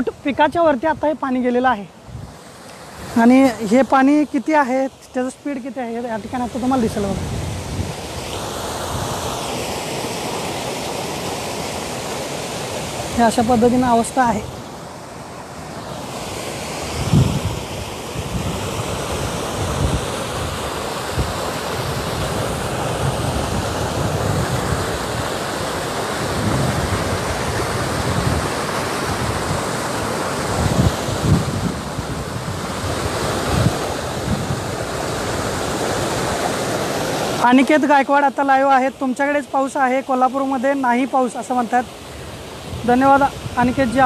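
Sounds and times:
wind buffeting microphone: 0:00.0 - 0:04.2, 0:05.9 - 0:09.3, 0:16.9 - 0:37.4, 0:42.1 - 0:44.0
floodwater rushing over rocks: 0:00.0 - 0:44.0.

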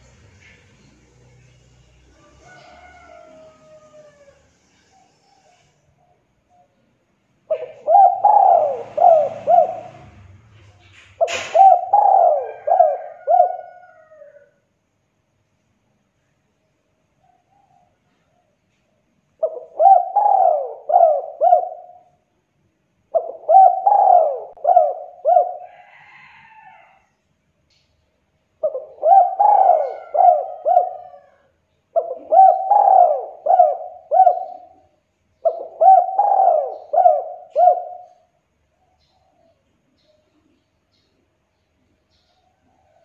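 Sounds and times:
dove cooing: 0:07.5 - 0:14.6, 0:19.4 - 0:22.2, 0:23.1 - 0:26.9, 0:28.6 - 0:39.6.

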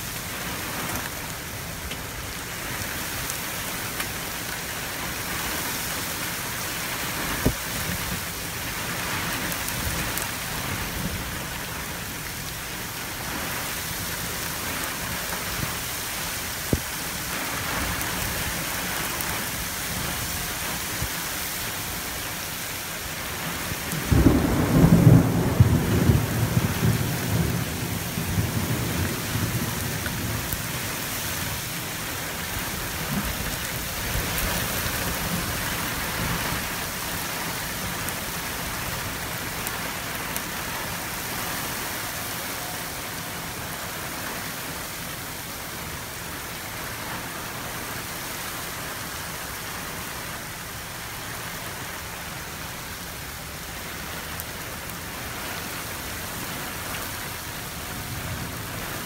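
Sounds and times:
heavy rain pouring: 0:00.0 - 0:59.0
low rumble of thunder: 0:23.6 - 0:31.6.

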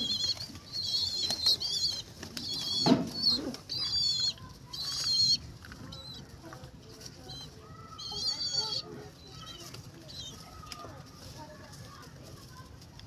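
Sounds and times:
low pigeon call: 0:00.0 - 0:06.4
pigeon wings flapping: 0:00.1 - 0:04.1.

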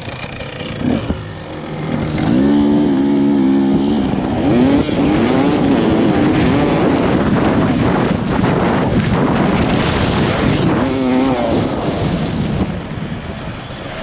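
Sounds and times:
dirt bike engine revving: 0:00.0 - 0:12.6
rough rushing noise: 0:00.0 - 0:14.0.

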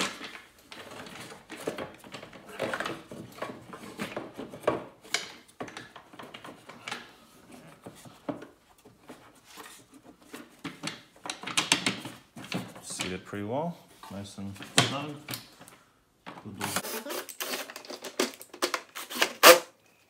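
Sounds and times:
plastic rubbing and scraping: 0:00.0 - 0:05.1.

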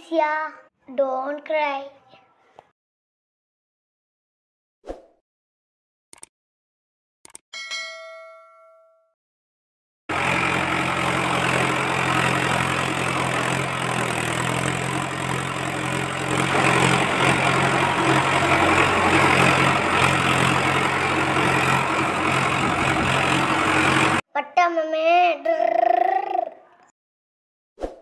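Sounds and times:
tractor engine running: 0:10.1 - 0:24.2.

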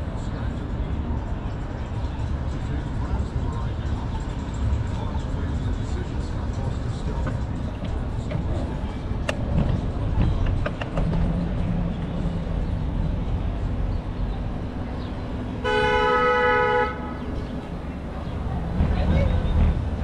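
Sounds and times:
street traffic rumble: 0:00.0 - 0:20.0
wind: 0:00.0 - 0:20.0
vehicle horn blast: 0:15.6 - 0:17.3.

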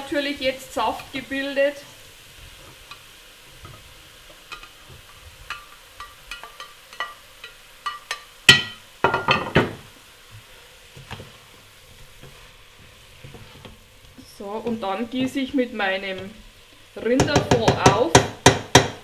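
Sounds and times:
faint meat sizzling: 0:00.0 - 0:19.0
metal spatula clinking on pot: 0:05.5 - 0:09.5
clattering scrapes: 0:13.2 - 0:13.8.

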